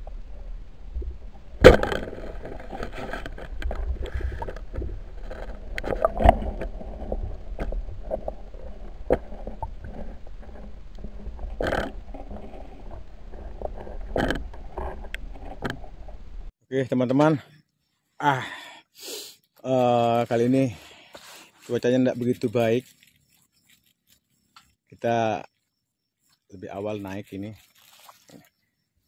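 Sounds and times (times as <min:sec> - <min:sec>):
low underwater rumble: 0:00.0 - 0:16.5.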